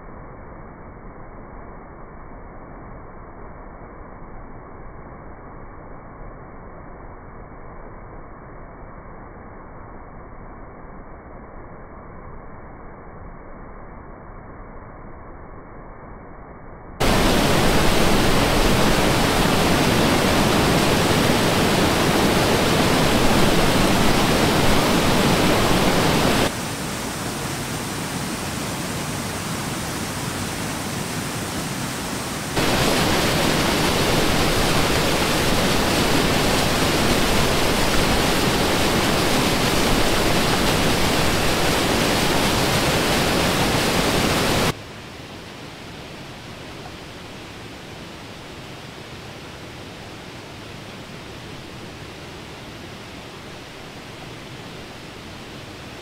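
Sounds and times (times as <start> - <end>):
stream rushing over rocks: 17.0 - 44.8.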